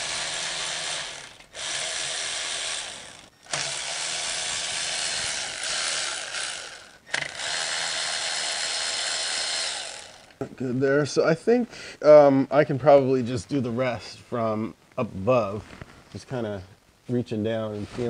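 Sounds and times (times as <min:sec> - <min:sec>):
electric ratchet motor running: 0:00.0 - 0:10.4.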